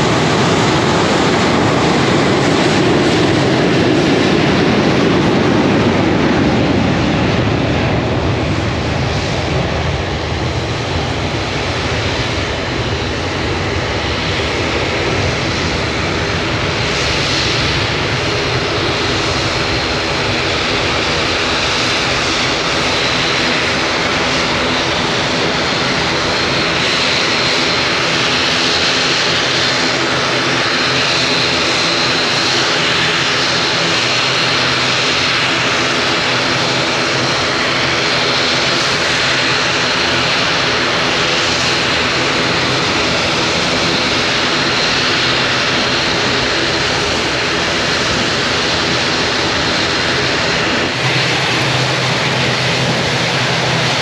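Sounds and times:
high turbine whine: 0.0s - 54.0s
propeller drone: 0.0s - 54.0s.

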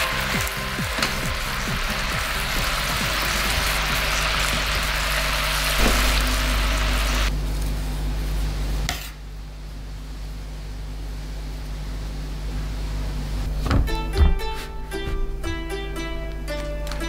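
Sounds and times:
sauce sizzling in a frying pan: 0.0s - 7.3s.

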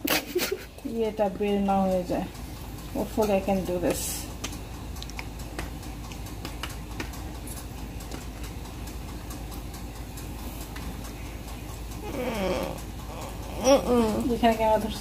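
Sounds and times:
steady low hum: 0.0s - 15.0s
wet clicks and squelches: 3.2s - 8.6s.

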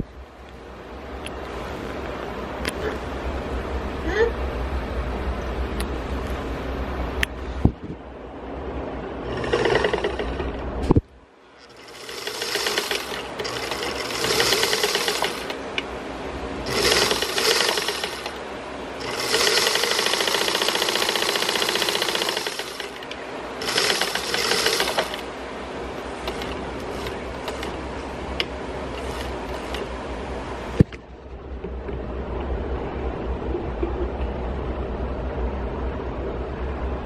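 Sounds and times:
sewing machine stitching: 9.2s - 10.7s, 11.6s - 15.7s, 16.6s - 18.4s, 19.0s - 25.3s, 26.2s - 27.8s, 28.9s - 29.9s.

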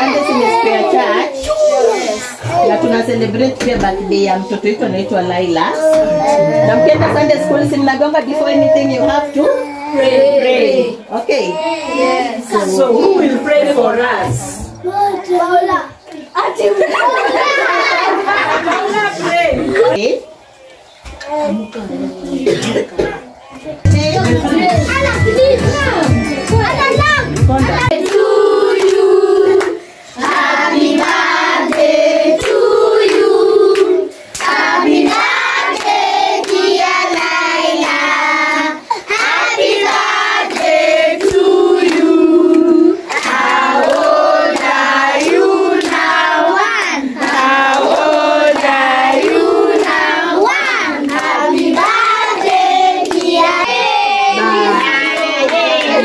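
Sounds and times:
children and adults singing: 5.4s - 11.1s, 23.8s - 56.0s.

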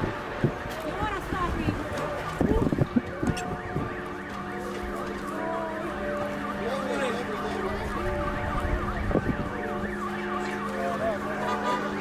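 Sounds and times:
car alarms wailing: 0.0s - 12.0s.

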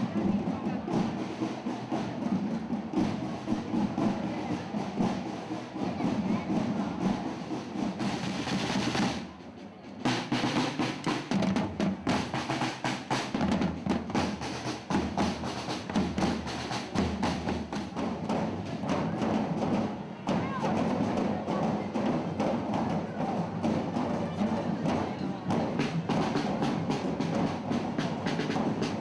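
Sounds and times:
marching drums with rolls: 0.0s - 29.0s.

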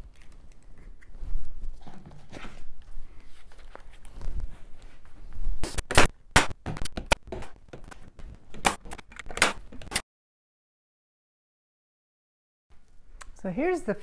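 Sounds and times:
nails being driven into wood: 5.9s - 7.9s, 8.5s - 10.0s.

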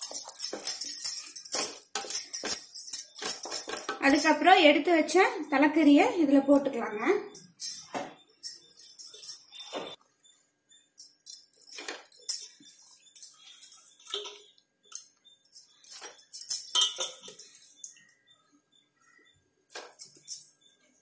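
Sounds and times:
meat clinking into metal pot: 16.0s - 17.6s.

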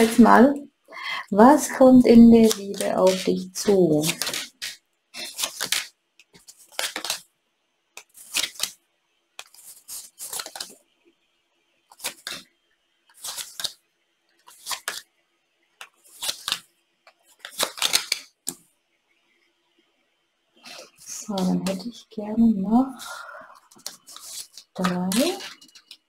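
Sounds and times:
playing cards laid on wooden table: 2.1s - 7.2s, 8.0s - 8.8s, 11.9s - 12.5s, 13.1s - 13.8s, 14.4s - 15.1s, 15.8s - 18.6s, 20.6s - 21.9s, 23.2s - 26.0s.

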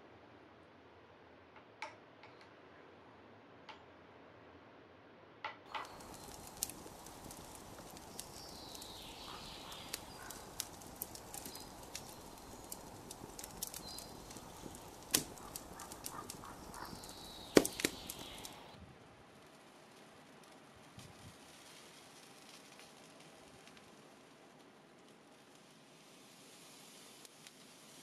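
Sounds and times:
soft steady hiss: 0.0s - 28.0s
fire crackling: 5.7s - 28.0s.

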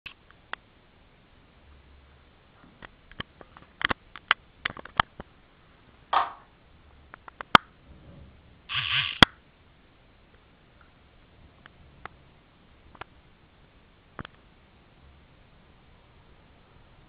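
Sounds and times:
rustle: 7.0s - 9.2s.

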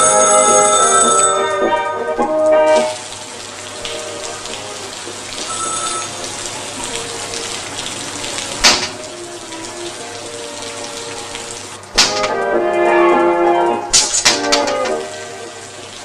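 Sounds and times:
steady rain hiss: 2.3s - 16.0s.

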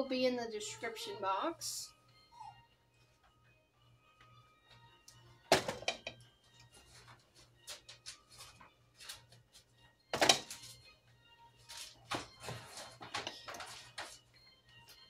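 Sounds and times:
faint background music: 0.0s - 15.0s.

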